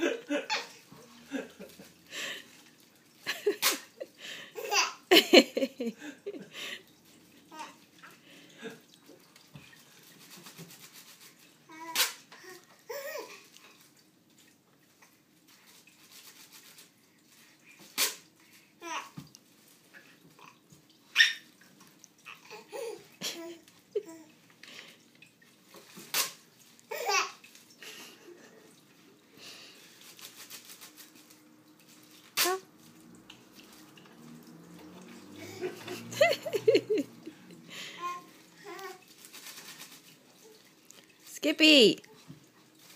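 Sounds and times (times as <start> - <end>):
baby giggling: 4.6 - 5.5.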